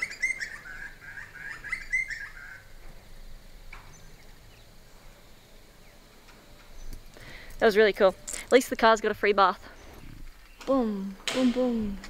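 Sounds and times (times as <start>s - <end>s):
bird chirping: 0.0s - 2.7s, 3.8s - 5.1s, 9.6s - 10.8s
faint outdoor background: 0.0s - 12.0s.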